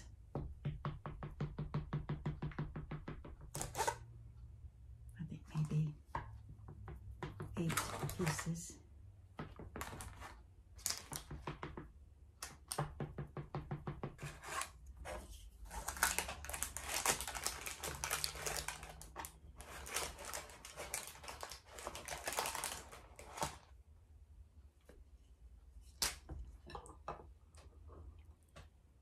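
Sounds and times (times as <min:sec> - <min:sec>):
plastic spatula scraping: 0:03.5 - 0:04.1, 0:07.6 - 0:08.5, 0:09.6 - 0:11.6, 0:14.1 - 0:23.7
knife cutting cake: 0:03.6 - 0:04.0
parchment paper crinkling: 0:14.4 - 0:23.7.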